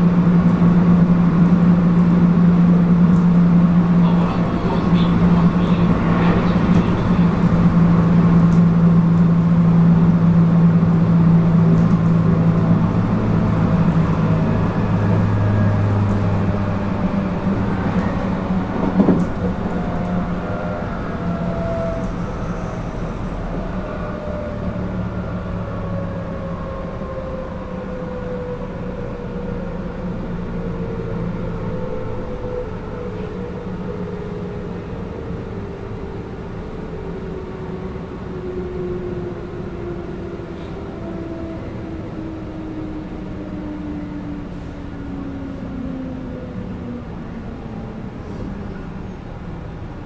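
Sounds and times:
rail noise: 0.0s - 50.0s
train motor whine: 1.5s - 25.9s.

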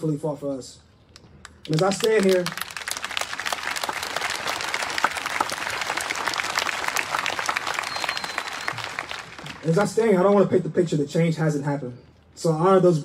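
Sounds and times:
crowd applauding: 1.4s - 10.5s.

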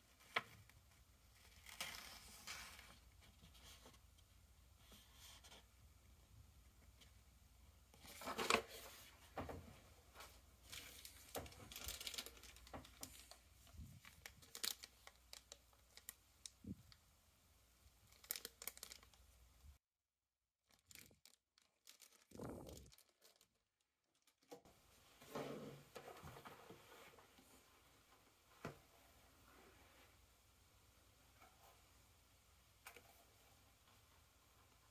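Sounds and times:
paper and plastic bag crinkling: 10.6s - 16.2s, 18.1s - 19.2s, 20.7s - 24.6s.

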